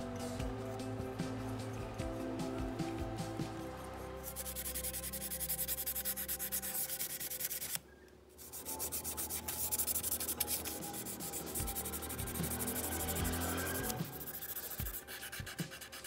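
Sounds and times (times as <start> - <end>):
toothbrush scrubbing metal: 4.2 - 7.8, 8.4 - 16.0.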